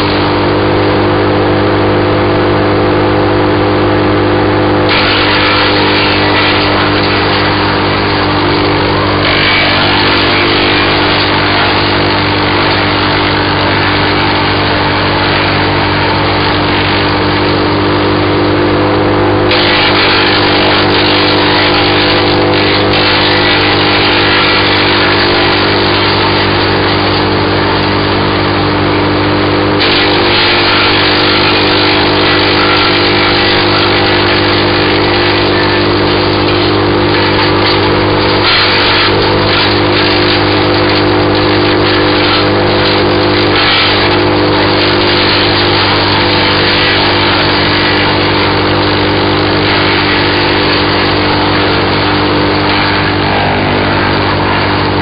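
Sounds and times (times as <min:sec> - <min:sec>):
wood chipper engine running: 0:00.0 - 0:55.0
branches being chipped: 0:30.0 - 0:51.6.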